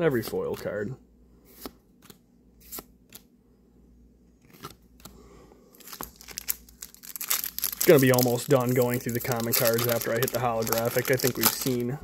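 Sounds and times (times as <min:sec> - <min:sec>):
trading cards being flipped by hand: 0:01.5 - 0:03.3, 0:04.4 - 0:05.2.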